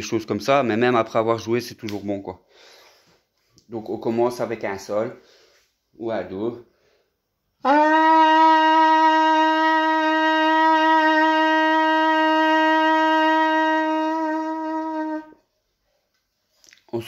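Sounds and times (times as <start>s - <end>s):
trumpet playing long note: 7.6s - 15.4s.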